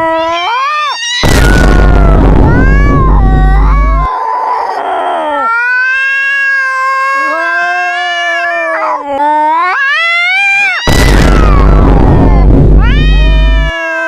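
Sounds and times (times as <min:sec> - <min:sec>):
cat yowling: 0:00.0 - 0:14.0
loud low rumble: 0:01.2 - 0:04.1, 0:10.9 - 0:13.7.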